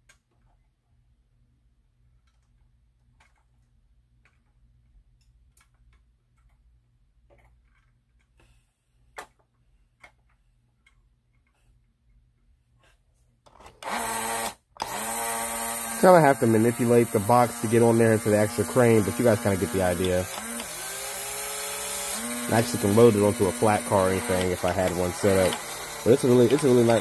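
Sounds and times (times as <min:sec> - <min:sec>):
model crane clicks and ticks: 0:24.3 - 0:27.0.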